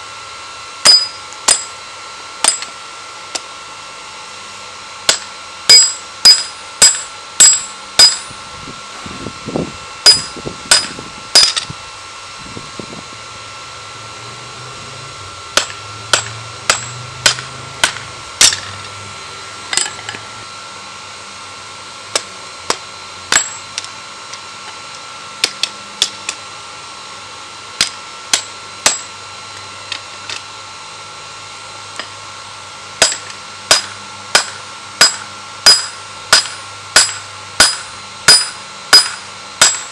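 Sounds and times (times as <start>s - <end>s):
hammer striking metal on anvil: 0.8s - 1.8s, 2.4s - 2.7s, 5.1s - 8.4s, 10.0s - 11.7s, 15.6s - 18.8s, 22.1s - 23.9s, 27.8s - 29.1s, 33.0s - 39.9s.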